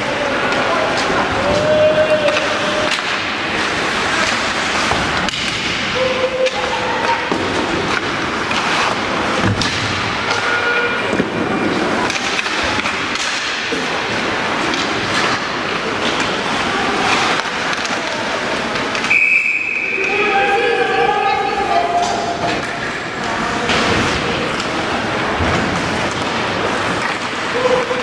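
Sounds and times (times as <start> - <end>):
people shouting: 0.0 - 3.2, 5.9 - 7.4, 19.6 - 22.5, 27.5 - 28.0
skates scraping ice: 0.0 - 28.0
puck and sticks knocking boards: 0.4 - 19.2.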